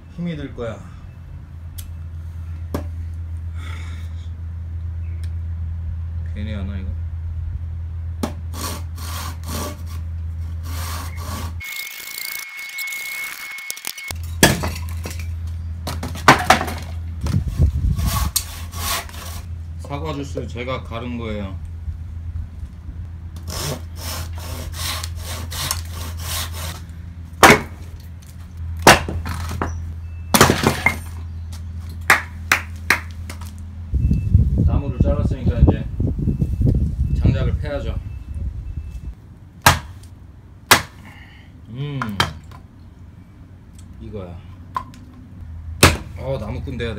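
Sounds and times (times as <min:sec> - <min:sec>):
steady low hum: 0:00.0 - 0:11.6, 0:14.1 - 0:46.9
handsaw cutting log: 0:08.5 - 0:11.7, 0:17.4 - 0:19.5, 0:23.4 - 0:26.8
thin steady whistle: 0:11.0 - 0:14.2
sharp cracks and pops: 0:11.6 - 0:15.6.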